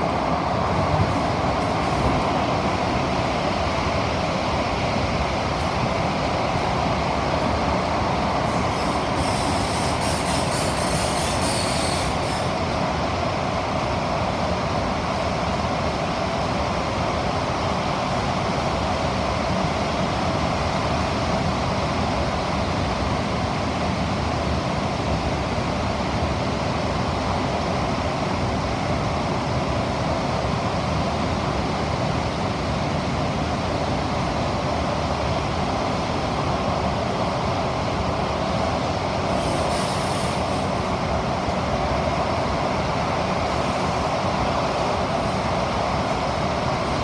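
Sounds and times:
train wheels rumbling on rail: 0:00.0 - 0:47.0
brief high hiss: 0:08.5 - 0:12.6, 0:39.3 - 0:40.7.

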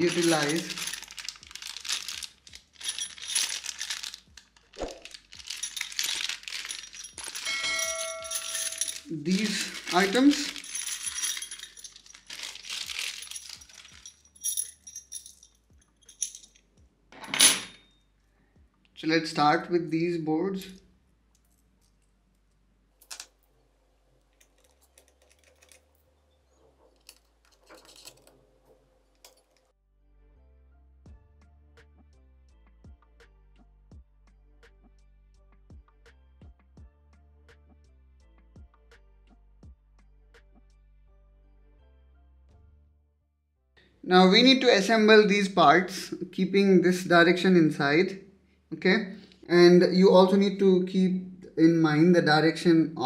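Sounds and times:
plastic bags crinkling: 0:00.0 - 0:14.6
small metal screws clinking: 0:00.0 - 0:17.9, 0:24.4 - 0:25.9, 0:27.0 - 0:28.4
light metallic clinks: 0:05.5 - 0:12.3
ringing chime: 0:07.4 - 0:09.0.

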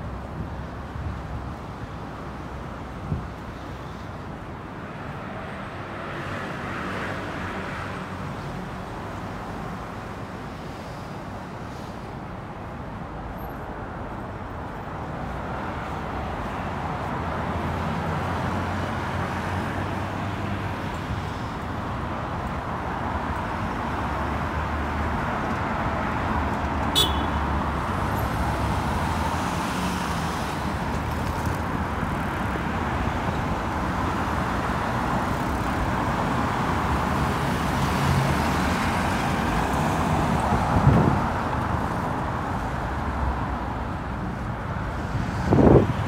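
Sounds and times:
cars running past: 0:13.4 - 0:46.0.

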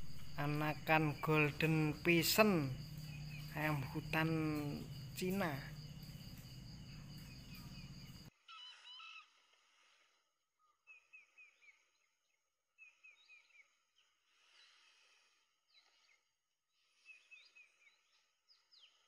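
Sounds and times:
background hiss: 0:00.0 - 0:08.3.

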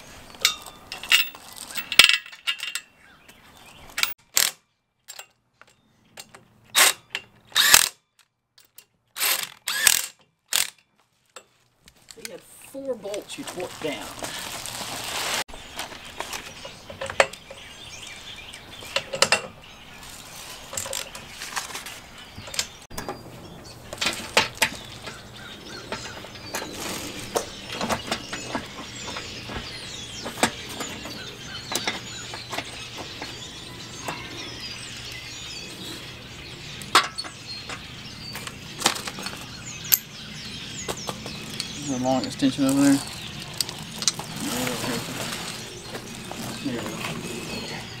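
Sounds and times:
birds chirping: 0:00.0 - 0:07.8, 0:09.7 - 0:48.0.

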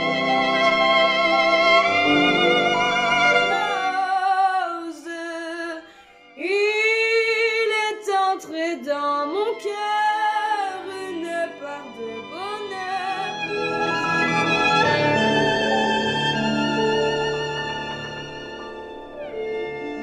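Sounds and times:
instrumental accompaniment: 0:00.0 - 0:04.6, 0:08.4 - 0:20.0
woman singing with vibrato: 0:03.6 - 0:13.4.

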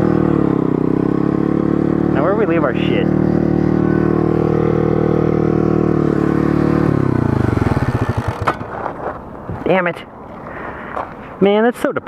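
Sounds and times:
small motorcycle engine running: 0:00.0 - 0:08.7.

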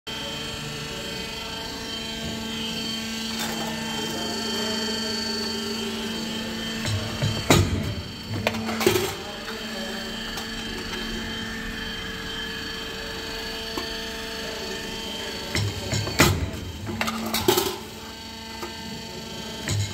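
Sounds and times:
hydraulic press humming: 0:00.3 - 0:19.9.

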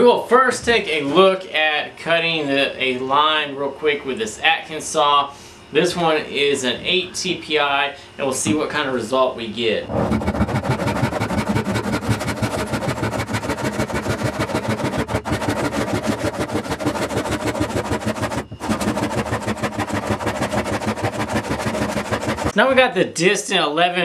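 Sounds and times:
handsaw sawing wood: 0:09.9 - 0:22.6.

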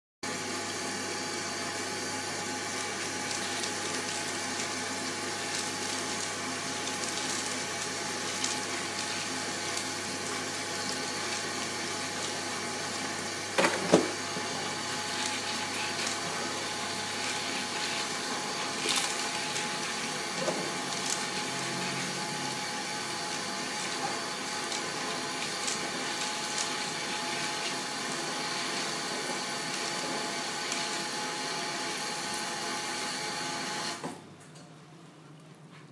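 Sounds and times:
tap water running into pot: 0:02.4 - 0:32.5
hands rubbing beans: 0:02.7 - 0:13.2, 0:14.4 - 0:31.2.

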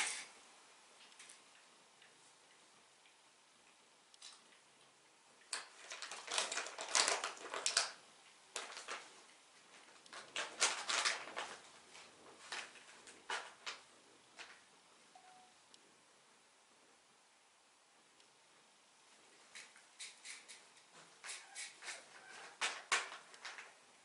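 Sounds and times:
foil pouches crinkling: 0:05.5 - 0:09.1, 0:09.7 - 0:13.8, 0:21.3 - 0:23.8.

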